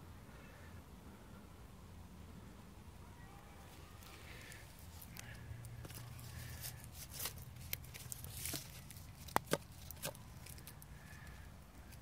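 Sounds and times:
rustling and crinkling: 3.7 - 12.0.

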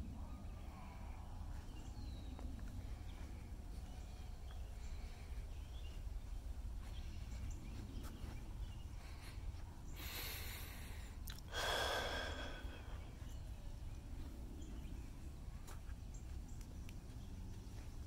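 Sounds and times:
steady low rumble: 0.0 - 18.0
person breathing: 2.7 - 6.0, 8.8 - 13.5.

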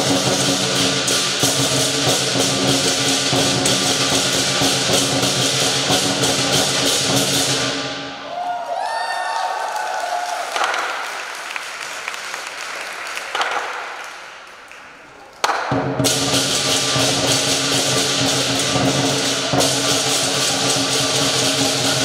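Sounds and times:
cymbals clashing: 0.0 - 8.2, 15.4 - 22.0
drum roll: 0.0 - 8.2, 15.4 - 22.0.

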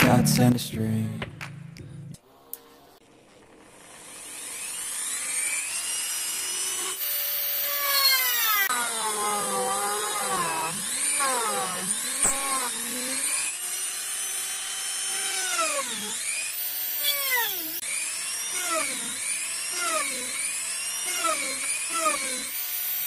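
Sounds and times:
rotary grinder drilling into wood: 3.6 - 23.0.

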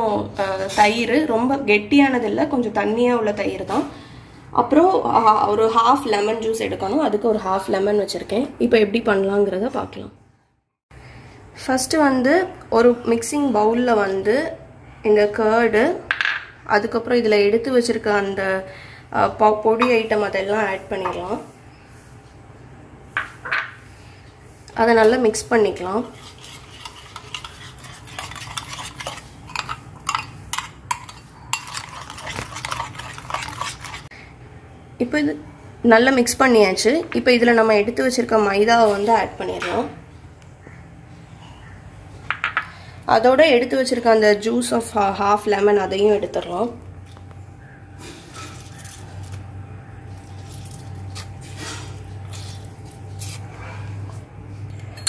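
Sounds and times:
lemon squishing: 48.3 - 54.2
juice dripping into bowl: 48.6 - 51.5.

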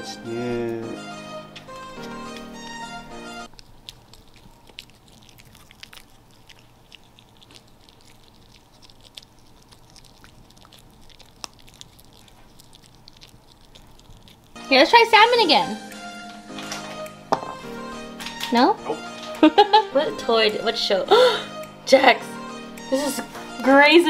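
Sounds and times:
dog chewing a treat: 3.5 - 15.0.

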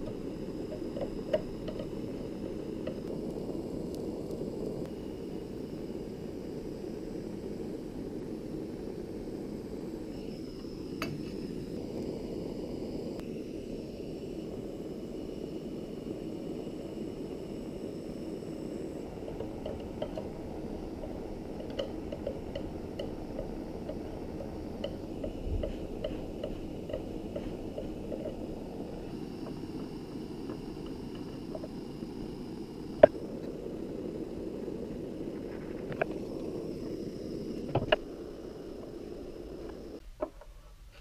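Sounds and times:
butane torch hissing: 0.0 - 41.0.

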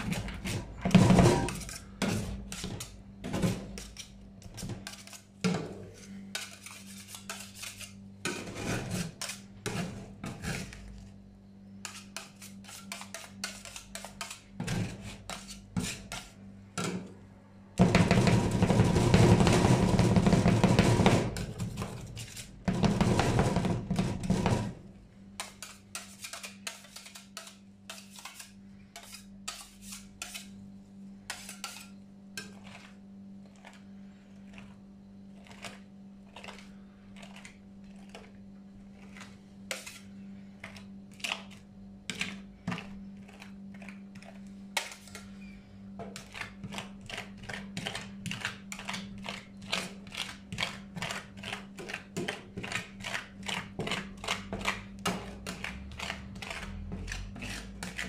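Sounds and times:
metal spatulas tapping and scraping: 0.0 - 10.8, 11.8 - 17.1, 25.4 - 30.6, 31.3 - 33.0, 39.1 - 58.0.

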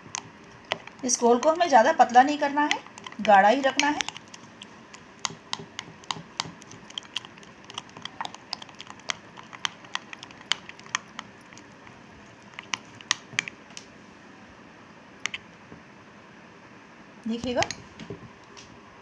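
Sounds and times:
spoon beating batter in glass bowl: 0.0 - 13.6.

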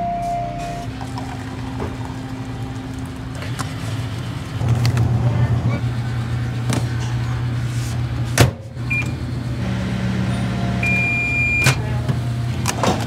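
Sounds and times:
microwave beeps: 0.0 - 0.9, 8.9 - 9.2, 10.7 - 11.8.

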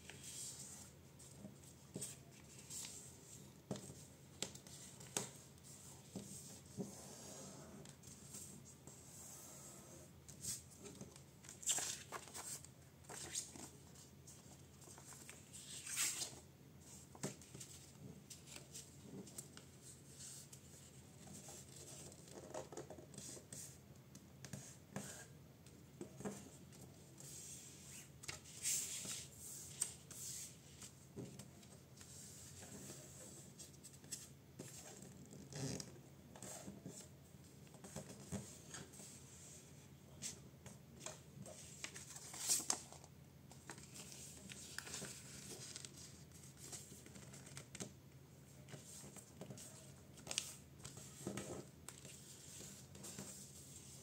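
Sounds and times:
paper rustling and crinkling: 41.4 - 47.9.

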